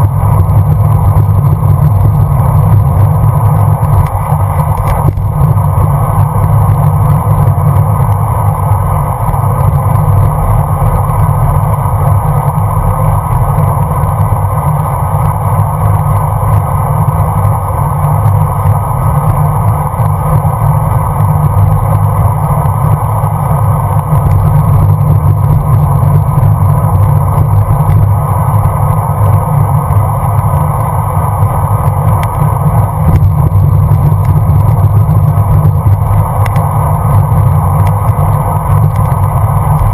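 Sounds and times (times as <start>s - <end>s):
wind rumble on microphone: 0.0s - 39.9s.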